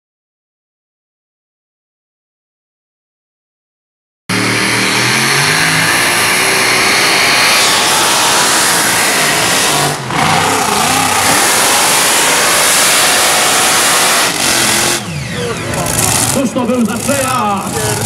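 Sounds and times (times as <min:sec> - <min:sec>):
tractor engines revving loud: 0:04.3 - 0:18.0.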